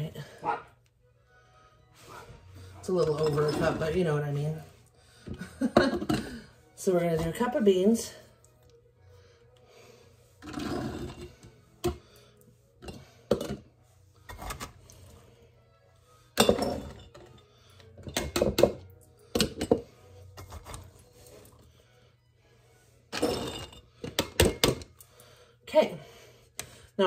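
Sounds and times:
cup clinking on glass jars: 16.4s - 17.2s.

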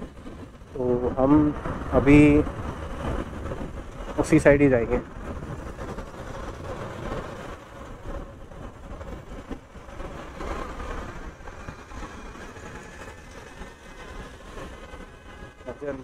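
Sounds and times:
city traffic: 0.0s - 16.0s.

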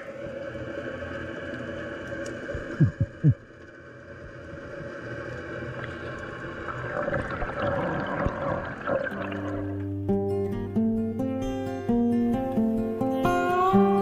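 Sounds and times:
rush of water: 0.0s - 9.8s
underwater hum: 0.0s - 10.1s.

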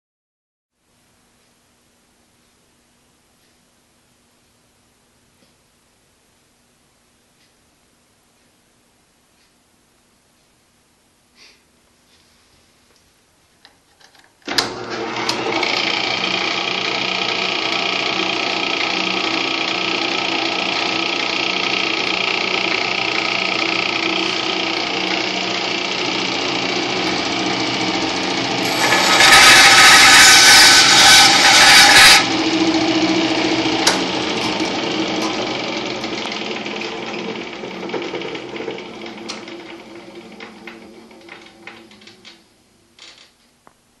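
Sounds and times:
bandsaw blade cutting wood: 14.5s - 42.4s
bandsaw motor humming: 14.5s - 43.1s.

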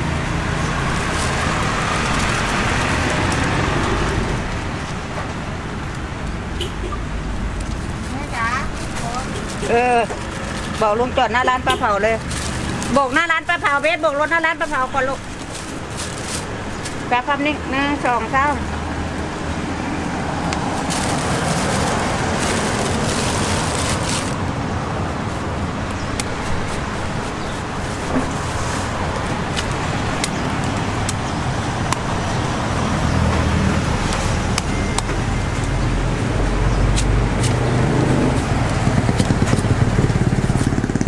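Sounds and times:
road traffic noise: 0.0s - 41.0s.

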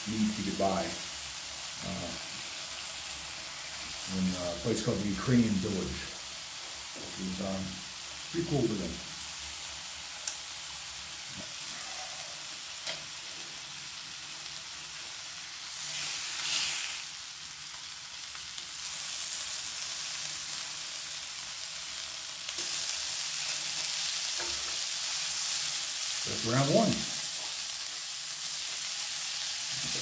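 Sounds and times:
meat sizzling on a grill pan: 0.0s - 30.0s.

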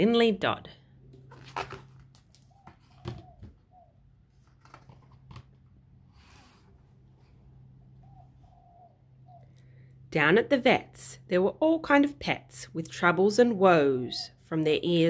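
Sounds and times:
paper rustling: 1.2s - 3.2s, 4.3s - 5.6s.

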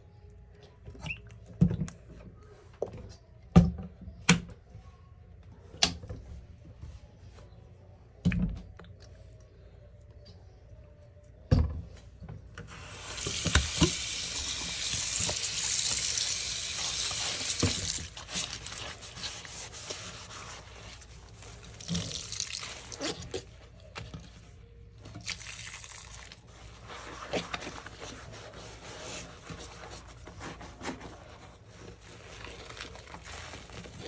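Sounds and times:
tap water running into sink: 12.9s - 18.2s.

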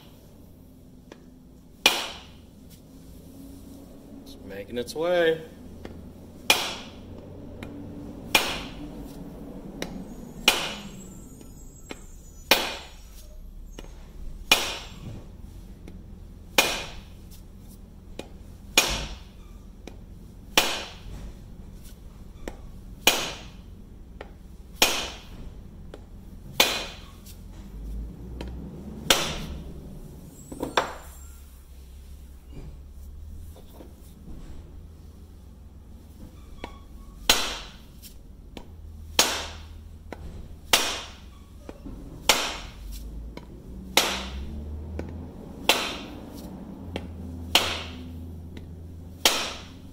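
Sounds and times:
rubber mallet knocking wood: 5.8s - 7.0s, 16.6s - 17.1s, 18.2s - 20.0s, 22.5s - 23.6s, 26.6s - 27.1s, 45.7s - 46.2s, 47.0s - 48.0s, 48.6s - 49.7s.

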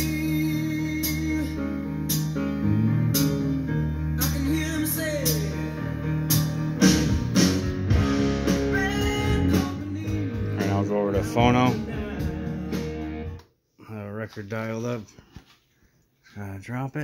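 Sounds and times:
song with singing guitar and drums: 0.0s - 13.4s.

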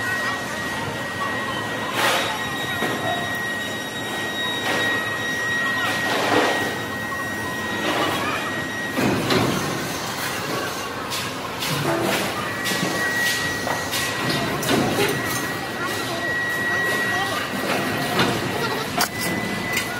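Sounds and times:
factory machinery whine: 0.0s - 19.9s.

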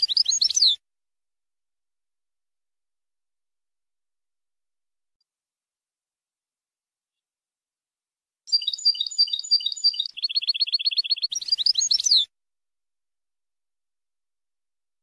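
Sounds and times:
goldfinch singing: 0.0s - 0.8s, 8.5s - 12.3s.

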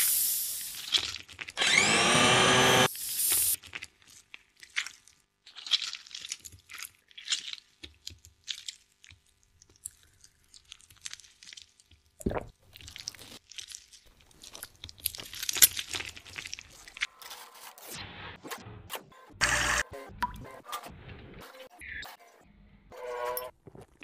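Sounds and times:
hands kneading crumbly dough: 3.6s - 17.4s.

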